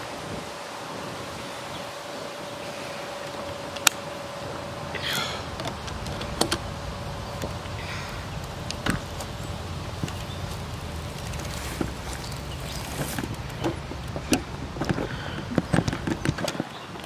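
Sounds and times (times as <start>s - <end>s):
wind rumbling on microphone: 0.0s - 17.0s
sharp clicks and knocks: 5.6s - 6.7s, 11.2s - 17.0s.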